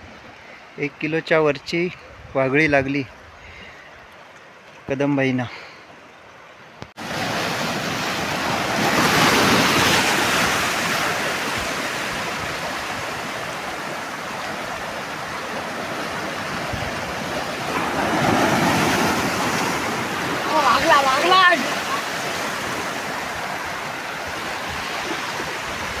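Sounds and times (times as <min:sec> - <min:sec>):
surf washing over rocks: 0:06.8 - 0:26.0.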